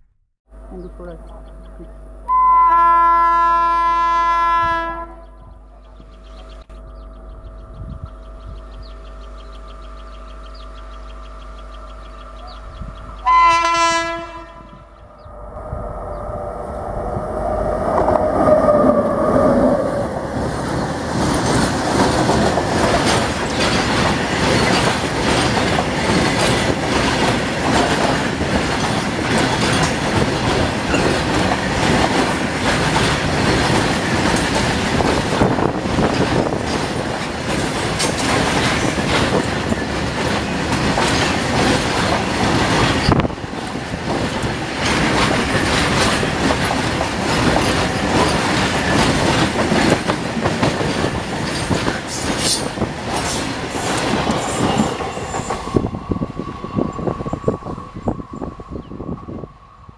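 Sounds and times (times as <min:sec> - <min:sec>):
electric locomotive humming: 0:00.5 - 0:59.9
train horn: 0:02.3 - 0:05.5, 0:13.2 - 0:14.9
wheels clattering over rail joints: 0:20.1 - 0:55.8.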